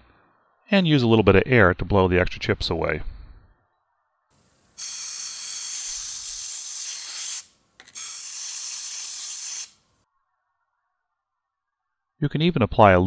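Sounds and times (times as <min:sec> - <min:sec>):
compressed-air blow gun hissing: 0:04.4 - 0:09.8.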